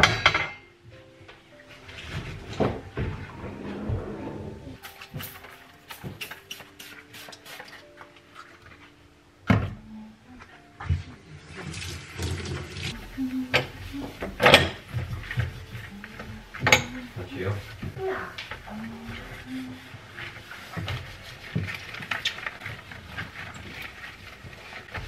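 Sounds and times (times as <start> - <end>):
plastic spray bottle clicking: 4.9 - 7.7.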